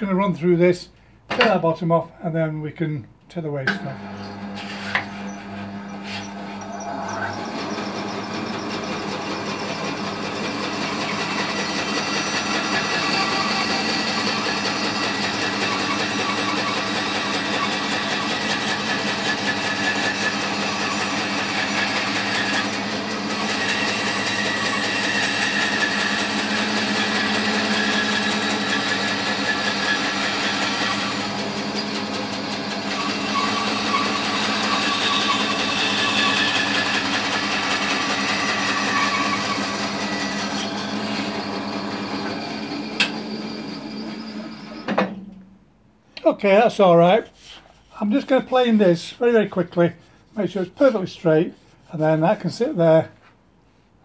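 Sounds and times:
bandsaw cutting wood: 3.7s - 45.0s.

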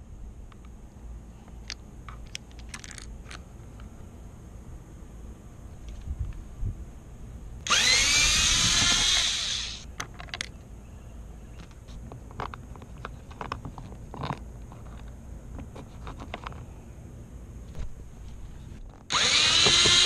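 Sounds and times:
cordless screwdriver whine: 7.7s - 9.8s, 19.1s - 20.0s.

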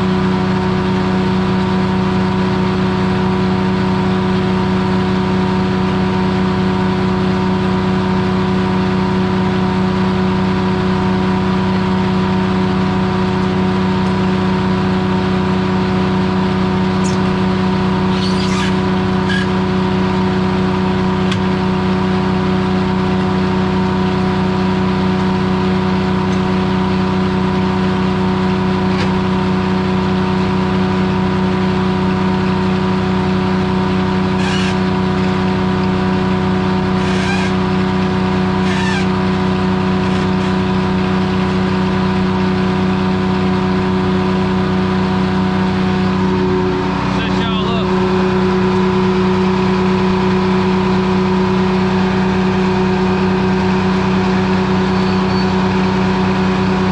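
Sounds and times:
sawmill running steadily: 0.0s - 56.9s.

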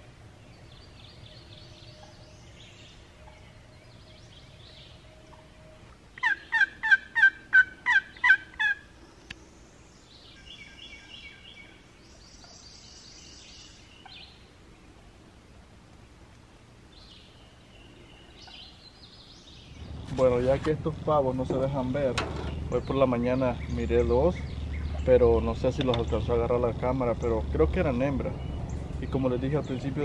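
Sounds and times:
small birds chirping: 0.0s - 7.2s, 7.9s - 15.2s, 16.0s - 30.0s
turkey yelping: 6.2s - 8.9s.

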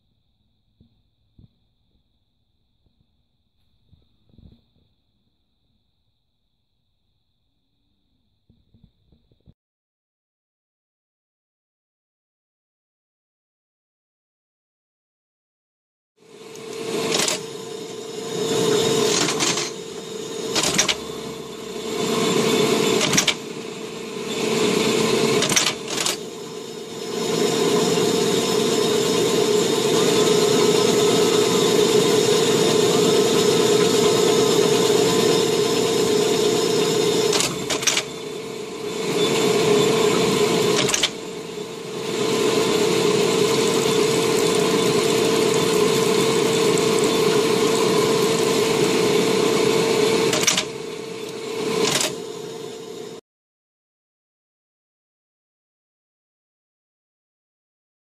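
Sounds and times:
screw machine humming: 16.2s - 53.2s.

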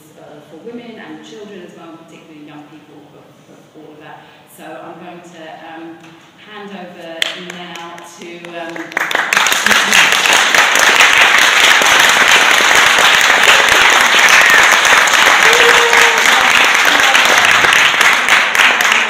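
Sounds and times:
audience applauding: 8.8s - 19.0s.

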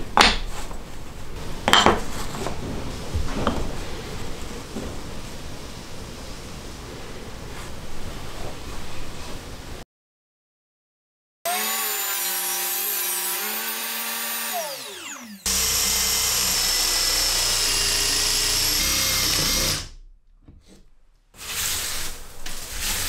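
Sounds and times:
soft workshop noises: 0.0s - 9.8s, 11.5s - 23.0s
electric motor whirring: 11.5s - 20.0s
power tool high whine: 11.5s - 20.0s.

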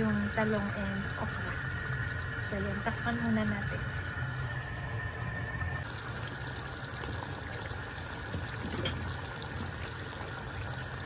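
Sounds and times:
low hum: 0.0s - 7.0s
stew bubbling in a pot: 0.0s - 11.0s.

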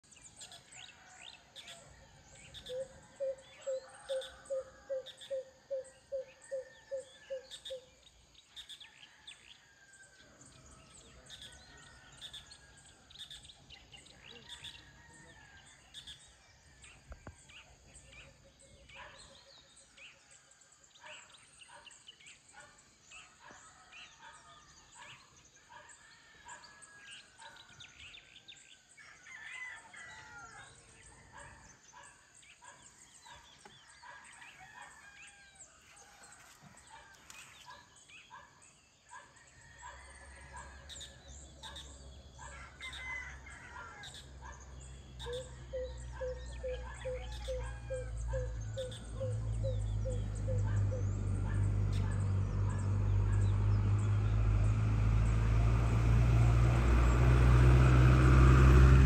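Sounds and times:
birds chirping and calling: 0.0s - 9.6s, 10.4s - 35.6s, 36.3s - 55.4s.

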